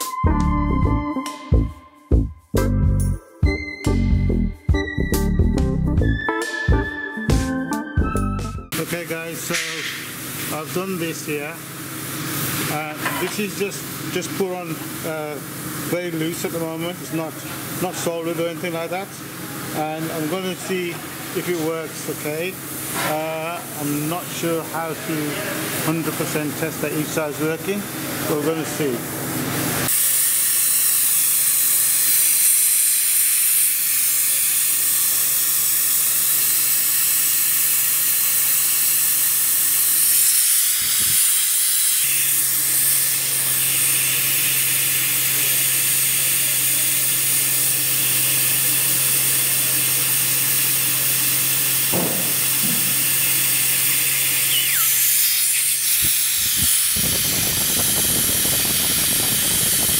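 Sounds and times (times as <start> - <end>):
compressed air hissing: 9.4 - 13.0, 29.8 - 41.2, 48.9 - 59.9.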